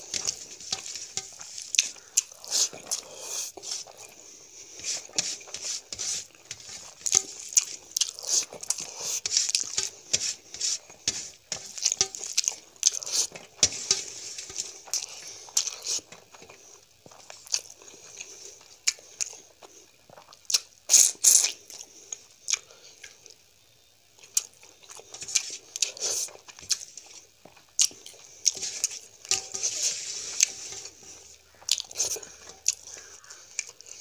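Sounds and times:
fingers on steel plate: 0:00.0 - 0:03.0, 0:04.8 - 0:12.5, 0:28.0 - 0:33.4
person chewing food: 0:00.0 - 0:23.4, 0:24.2 - 0:34.0.

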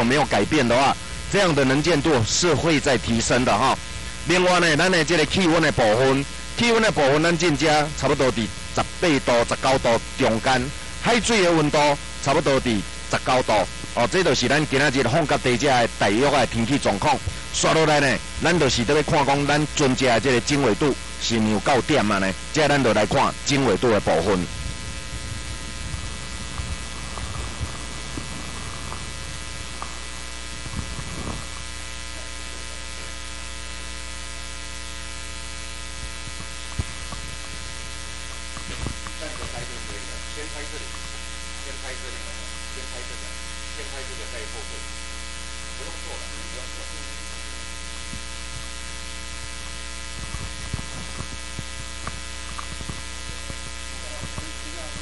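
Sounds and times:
electrical hum: 0:00.0 - 0:55.0
faint indistinct voices: 0:53.2 - 0:55.0.

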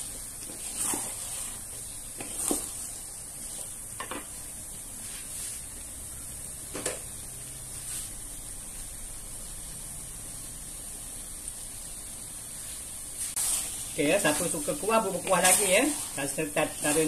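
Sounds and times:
spatulas scraping noodles in a wok: 0:00.0 - 0:03.8, 0:13.2 - 0:17.0
steady sizzle: 0:00.0 - 0:17.0.

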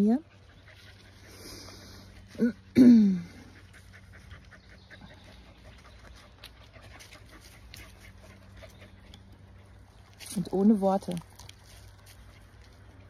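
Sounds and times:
dog panting: 0:00.0 - 0:02.3, 0:03.4 - 0:10.2.

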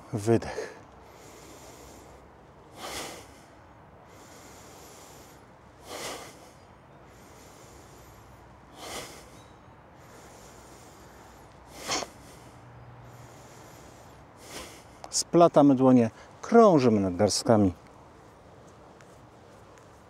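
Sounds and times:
soft in-breaths: 0:00.4 - 0:15.2, 0:16.1 - 0:16.4
person breathing out hard: 0:00.5 - 0:15.0.

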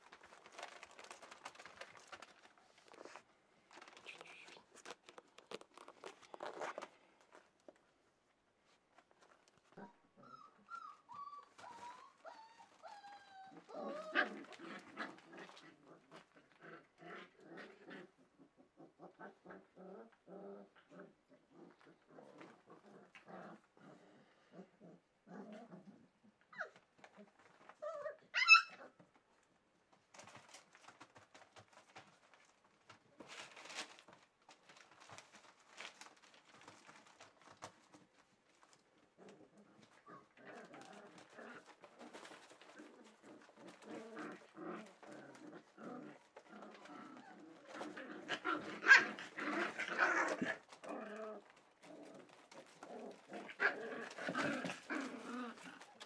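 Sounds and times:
puppies yelping and whimpering: 0:10.2 - 0:14.3, 0:27.9 - 0:28.8.

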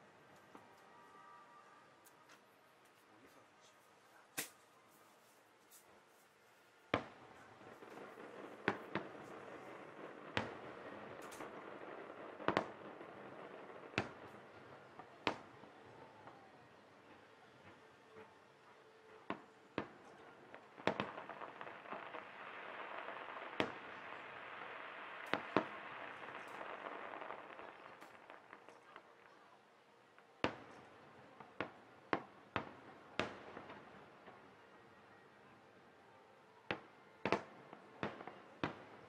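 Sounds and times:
steady hiss: 0:00.0 - 0:35.0
firework shells bursting: 0:04.4 - 0:04.6, 0:06.9 - 0:16.5, 0:19.2 - 0:29.3.

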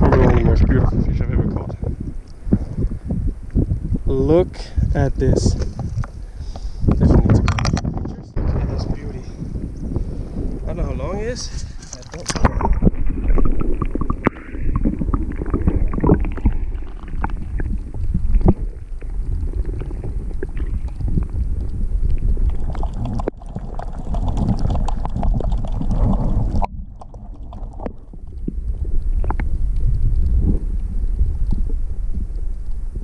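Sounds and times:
muffled underwater water churning: 0:00.0 - 0:33.0
small underwater clicks and knocks: 0:05.5 - 0:08.2, 0:11.7 - 0:33.0.

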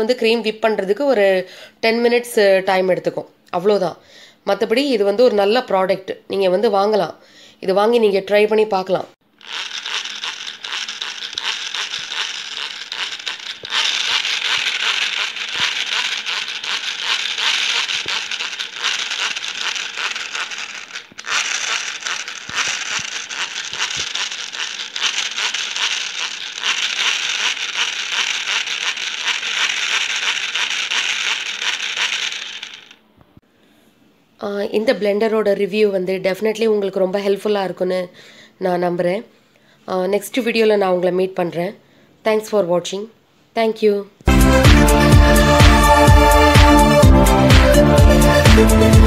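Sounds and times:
hand blender gears whirring: 0:09.2 - 0:33.0.

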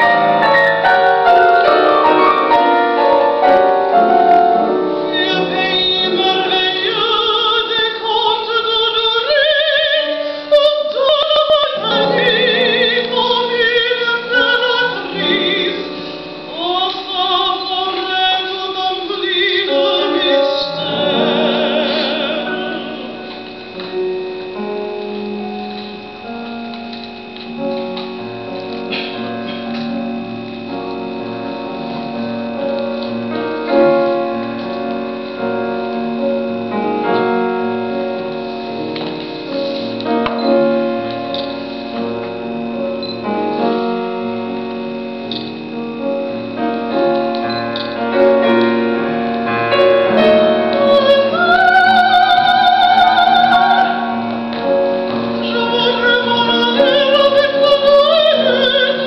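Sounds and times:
piano chords: 0:00.0 - 0:59.0
woman singing opera: 0:05.0 - 0:23.6, 0:49.7 - 0:59.0.

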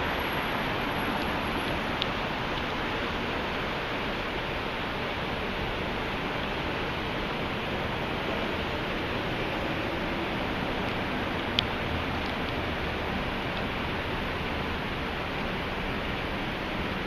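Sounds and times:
outdoor city din: 0:00.0 - 0:17.0.

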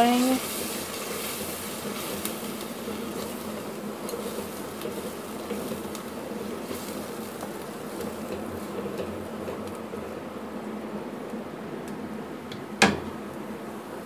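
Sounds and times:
food sizzling in a pan: 0:00.0 - 0:11.3.

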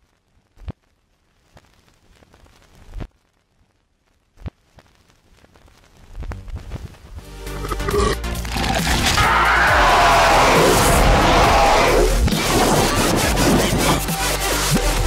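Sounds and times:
music: 0:06.4 - 0:15.0.

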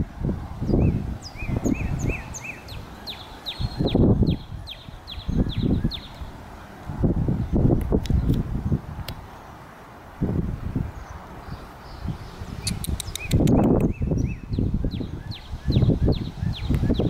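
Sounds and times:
wind rumbling on microphone: 0:00.0 - 0:17.0
songbird whistling: 0:00.8 - 0:06.2, 0:12.6 - 0:17.0.

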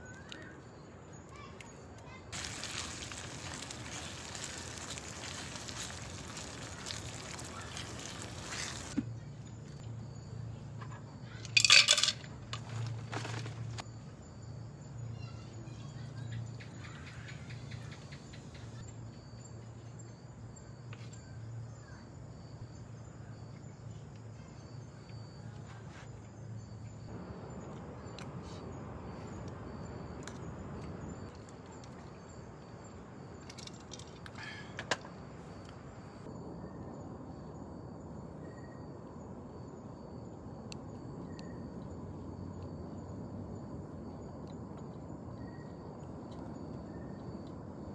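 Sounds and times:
food sizzling in pot: 0:02.3 - 0:09.0
utensils clinking on cookware: 0:11.6 - 0:12.2.

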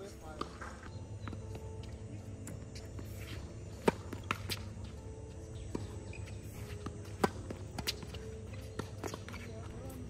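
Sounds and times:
tennis racket striking ball: 0:03.8 - 0:04.6, 0:06.6 - 0:09.5.

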